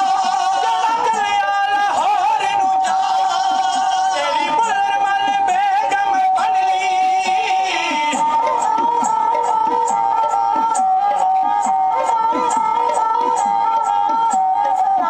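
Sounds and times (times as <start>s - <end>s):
men singing a wavering melody: 0.0s - 15.0s.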